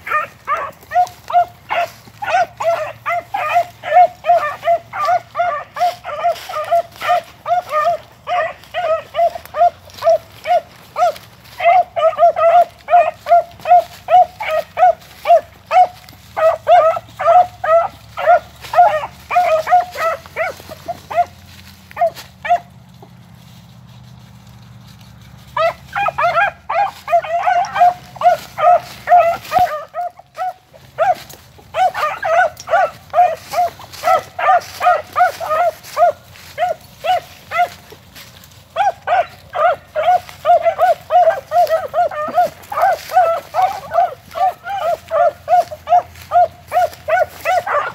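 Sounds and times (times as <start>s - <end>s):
dogs yelping: 0.0s - 23.2s, 24.7s - 47.9s.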